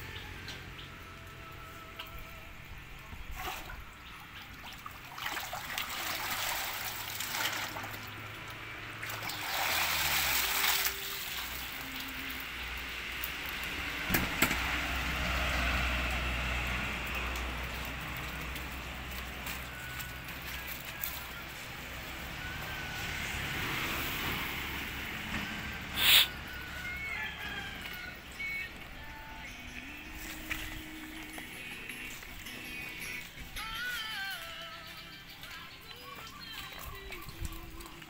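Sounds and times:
water splashing and pouring: 0:03.2 - 0:14.0, 0:15.1 - 0:21.9, 0:36.2 - 0:38.0.

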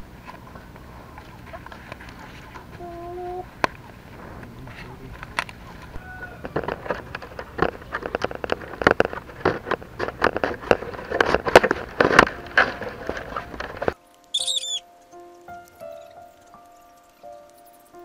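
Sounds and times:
bamboo strips clicking and crackling: 0:00.0 - 0:18.0
high chirping call: 0:14.3 - 0:18.0.

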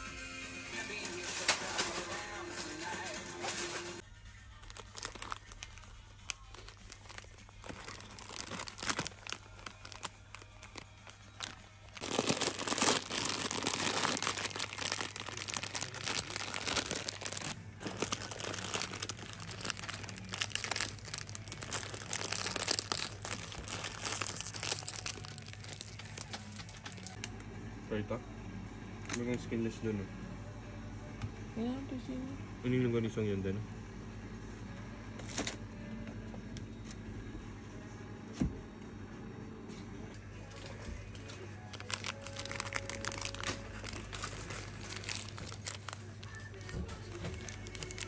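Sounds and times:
plastic snack packets crinkling: 0:04.6 - 0:27.2, 0:41.7 - 0:48.0.

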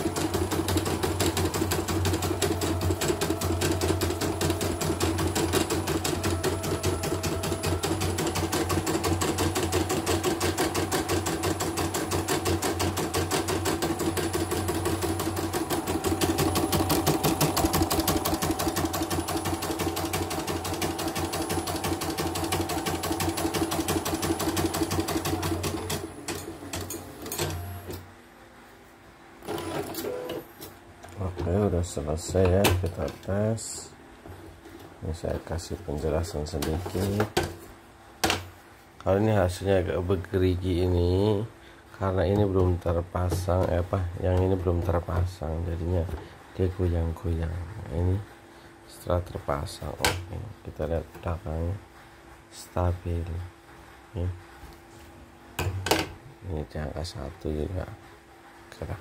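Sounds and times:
embroidery machine stitching: 0:00.0 - 0:28.0, 0:29.4 - 0:30.4.

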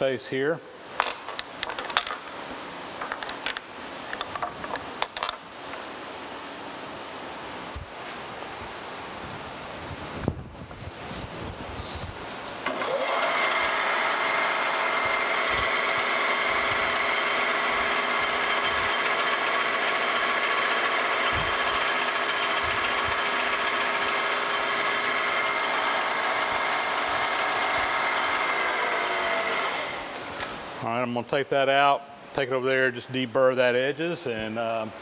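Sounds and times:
end mill cutting steel: 0:12.6 - 0:30.2
milling machine spindle spinning: 0:12.6 - 0:30.2.

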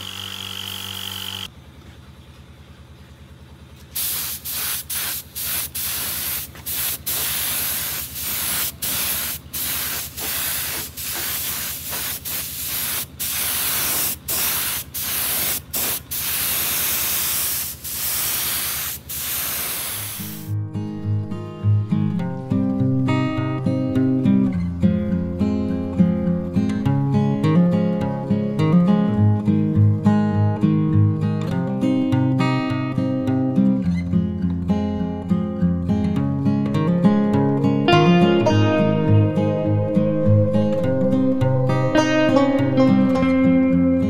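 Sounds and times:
air compressor humming: 0:00.0 - 0:01.5, 0:04.0 - 0:20.6
spray gun hissing bursts: 0:04.0 - 0:20.5.

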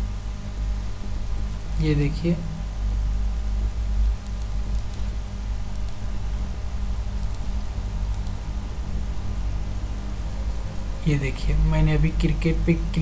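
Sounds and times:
low hum: 0:00.0 - 0:13.0
computer mouse clicking: 0:04.2 - 0:05.1, 0:05.7 - 0:06.0, 0:07.2 - 0:07.5, 0:08.1 - 0:08.4.

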